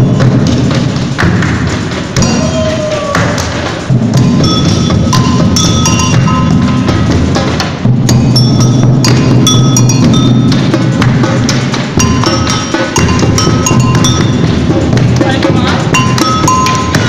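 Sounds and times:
large drums: 0.0 - 17.0
agogo bell ringing: 2.2 - 2.7, 4.0 - 17.0.

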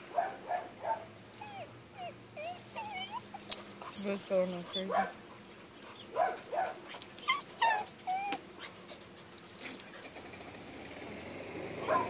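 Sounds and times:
dog whimpering: 1.3 - 5.0, 7.2 - 8.8.

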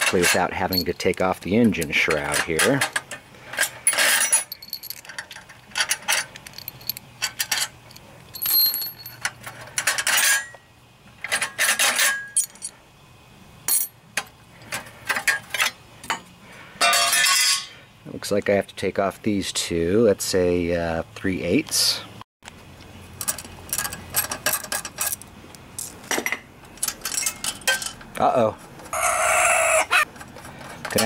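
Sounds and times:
metal bolts clinking and scraping: 0.0 - 10.6, 11.2 - 12.8, 13.7 - 16.2, 16.8 - 17.8, 23.2 - 28.0, 30.1 - 31.0.

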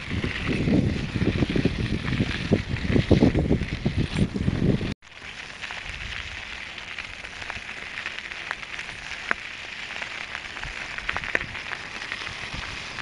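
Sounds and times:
small clicks and ticks: 5.2 - 13.0.

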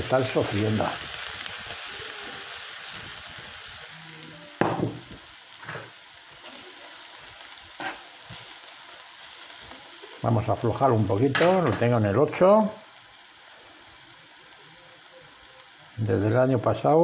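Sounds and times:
leek sizzling in frying pan: 0.0 - 17.0
pan knocking on hob: 4.6 - 5.2.

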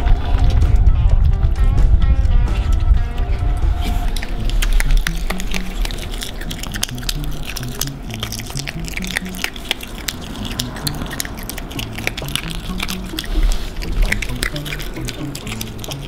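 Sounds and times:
background music low melody: 0.0 - 16.0
otter crunching dry pellets: 3.8 - 16.0.

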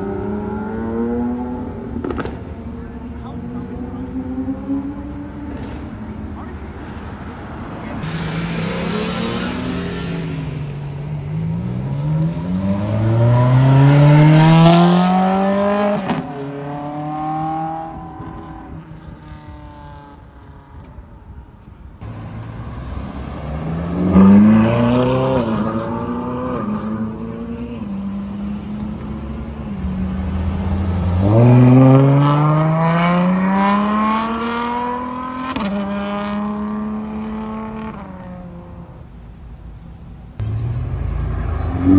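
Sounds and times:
sports car engine revving: 8.0 - 18.8, 22.0 - 38.8.

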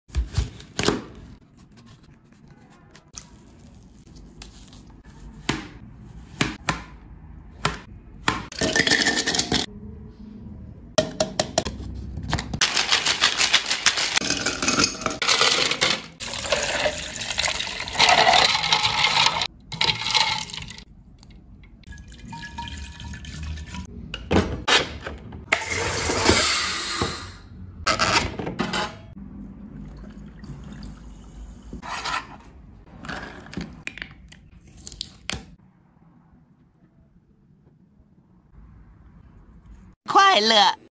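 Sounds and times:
ice cubes clinking in water: 12.6 - 20.8.

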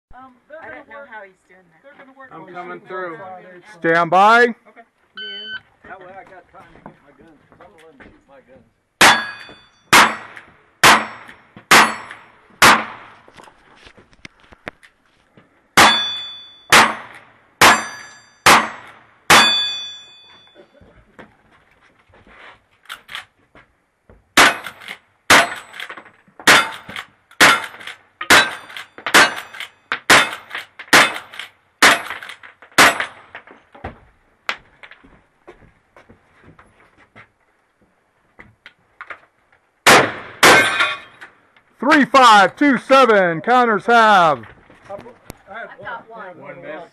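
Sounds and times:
steel target ringing: 9.0 - 12.2, 15.8 - 20.6
rifle shots: 9.0 - 13.2, 15.8 - 19.7, 26.5 - 33.3, 39.8 - 41.0.

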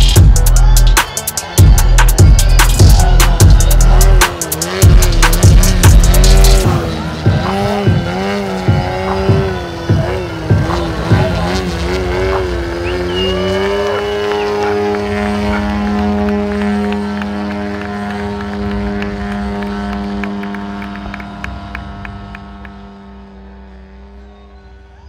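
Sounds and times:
model plane engine and propeller: 10.7 - 25.0.

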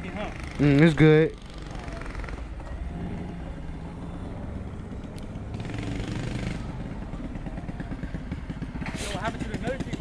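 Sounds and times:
mini bike engine idling: 5.4 - 10.0.

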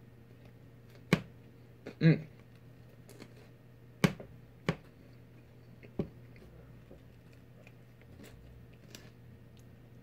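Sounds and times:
person chewing: 4.8 - 10.0.

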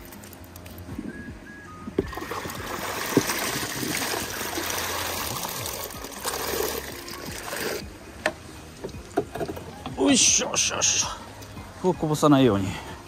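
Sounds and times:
water trickling and pouring: 2.0 - 7.8.

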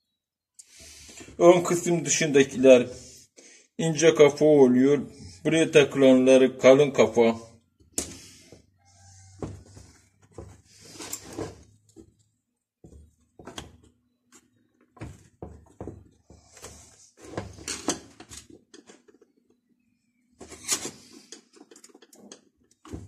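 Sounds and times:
small parts clicking and tapping: 21.2 - 22.9.

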